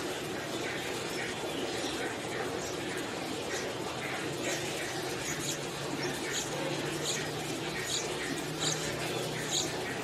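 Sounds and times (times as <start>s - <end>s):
nestlings begging with high cheeps: 4.4s - 10.0s.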